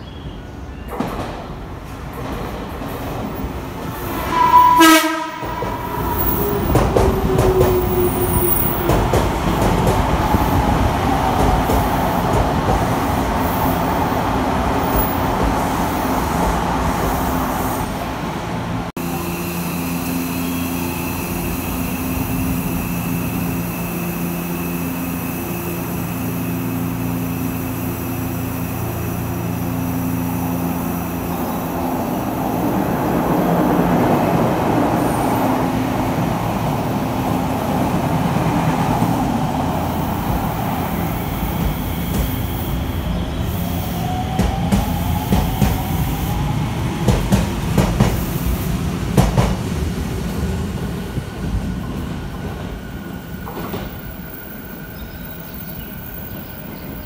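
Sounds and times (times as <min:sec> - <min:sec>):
train cars rumbling past: 0:00.0 - 0:57.0
stopped train humming: 0:00.4 - 0:57.0
train horn blast: 0:04.1 - 0:08.8.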